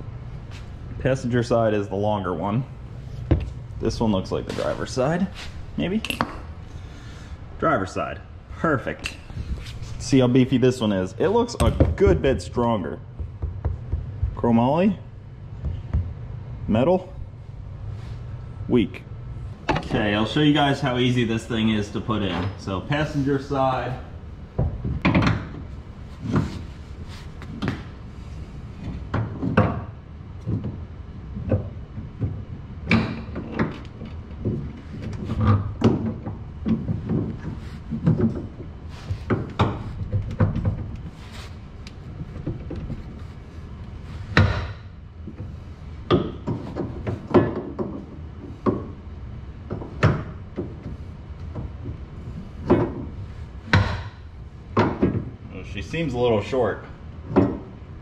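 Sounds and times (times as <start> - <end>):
metallic knocks and clunks: 11.4 - 14.6, 44.3 - 49.0.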